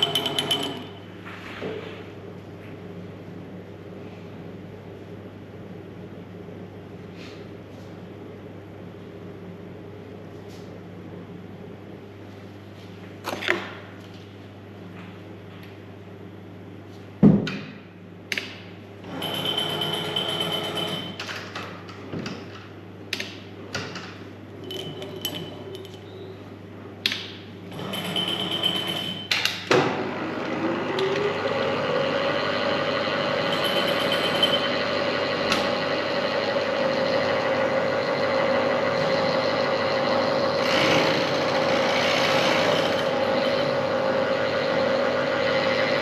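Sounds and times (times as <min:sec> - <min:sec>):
milling machine whine: 0:00.0 - 0:01.0, 0:30.1 - 0:46.0.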